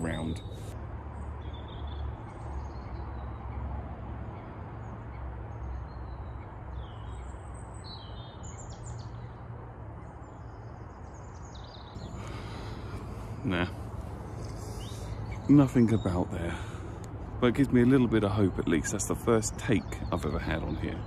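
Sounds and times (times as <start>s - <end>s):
bird chirps: 0.0s - 0.8s, 1.4s - 9.4s, 10.0s - 21.0s
low outdoor background rumble: 0.0s - 21.0s.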